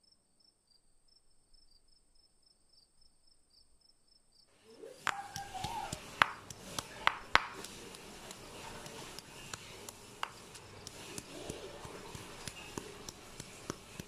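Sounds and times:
stone pestle pounding in mortar: 0:05.0 - 0:14.0.

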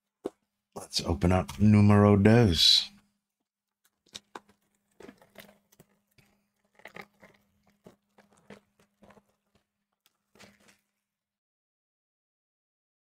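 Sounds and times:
shrink wrap crinkling and tearing: 0:03.8 - 0:11.0.

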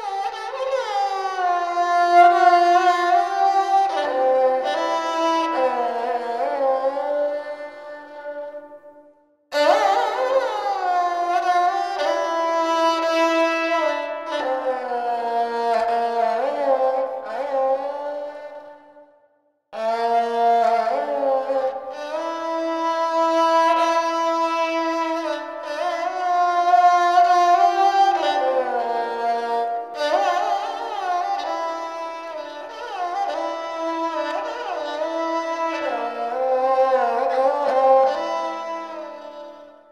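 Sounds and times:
bowed string instrument solo: 0:00.0 - 0:19.0, 0:19.8 - 0:39.9.

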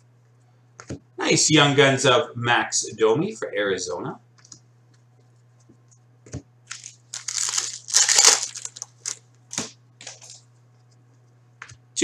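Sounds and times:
wrapper tearing and crinkling: 0:06.7 - 0:10.4.

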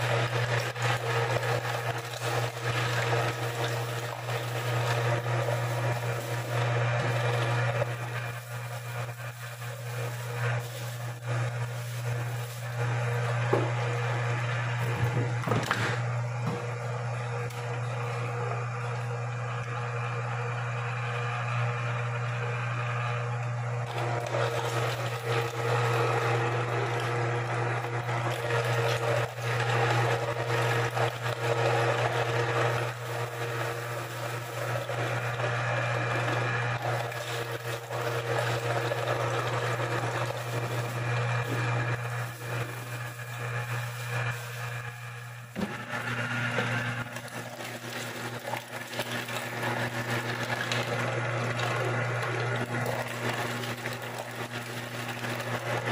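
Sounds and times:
grinding meat and bones: 0:00.0 - 0:14.0, 0:23.9 - 0:44.5, 0:46.5 - 0:55.9
meat grinder motor hum: 0:00.0 - 0:55.9.

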